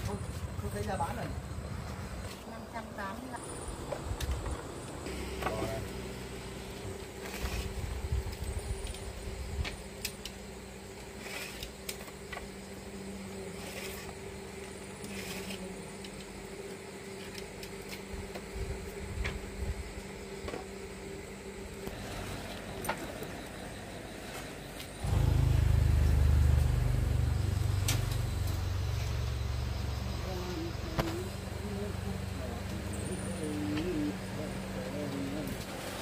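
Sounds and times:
low hum: 25.0s - 36.0s.

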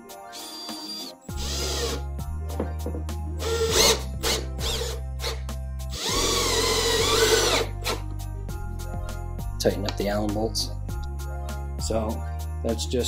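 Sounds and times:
background music: 0.0s - 13.0s
cordless drill motor whine: 0.3s - 2.0s, 3.4s - 8.0s.

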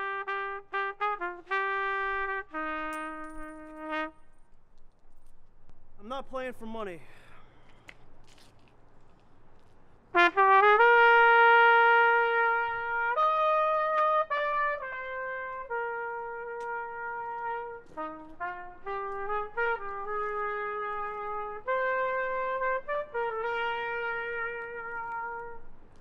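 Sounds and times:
trumpet melody: 0.0s - 4.6s, 10.1s - 26.0s.

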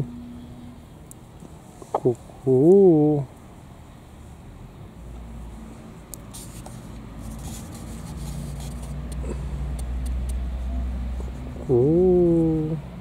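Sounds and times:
rooster murmuring: 11.6s - 12.9s.

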